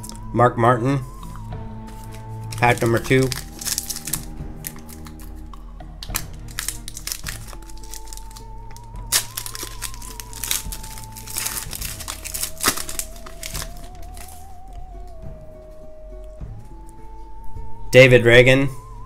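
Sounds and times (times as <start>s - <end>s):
soft background music: 0.0s - 19.0s
foil wrapper crinkling and tearing: 2.0s - 5.4s, 6.0s - 14.7s.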